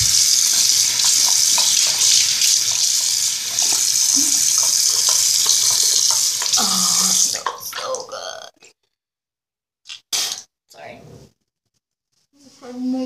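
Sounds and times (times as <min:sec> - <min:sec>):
water splashes from face washing: 0:00.0 - 0:08.1
sink tap running: 0:00.0 - 0:08.4.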